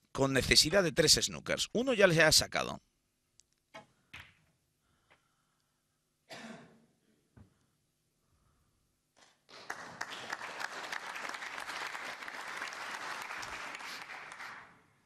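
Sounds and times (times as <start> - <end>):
audience clapping: 9.5 - 14.8.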